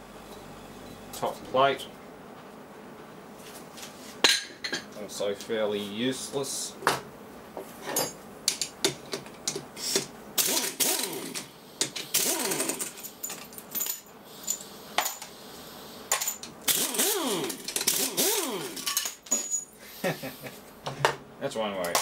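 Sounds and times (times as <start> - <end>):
pneumatic impact wrench: 9.8 - 13.4, 16.1 - 19.4
steel parts clinking on workbench: 18.8 - 19.7.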